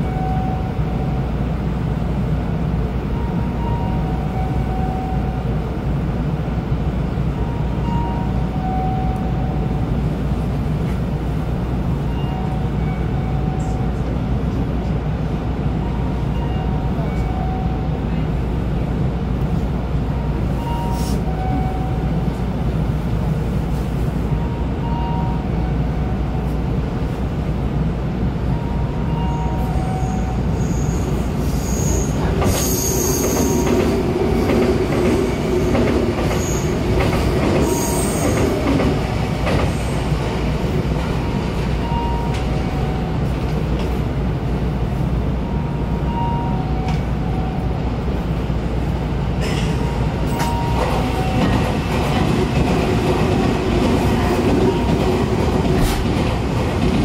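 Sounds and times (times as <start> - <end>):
train electrical hum: 0.0 - 57.0
train wheels squealing on rails: 20.4 - 22.3, 28.5 - 34.0, 35.0 - 40.2, 49.4 - 52.3.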